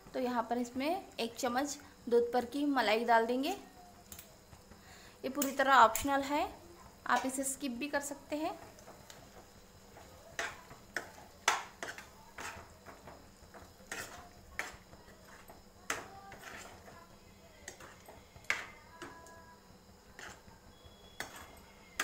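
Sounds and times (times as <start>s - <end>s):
spoon stirring thick curry: 8.5s - 19.3s, 20.1s - 22.0s
metal spoon clinking against pan: 10.0s - 16.8s, 21.1s - 21.7s.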